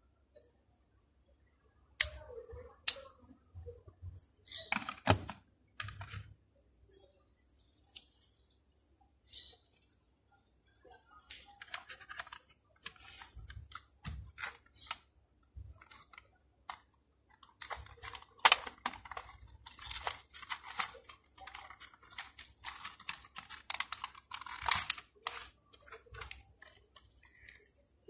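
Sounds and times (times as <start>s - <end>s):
cardboard packaging rustling: 17.4s - 27.2s.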